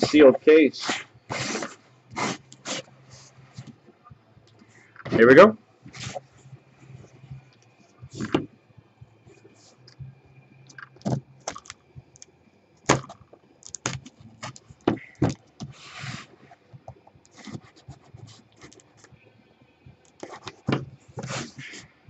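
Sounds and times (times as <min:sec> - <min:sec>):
blade scratching through packing tape: 0:00.8 - 0:02.9.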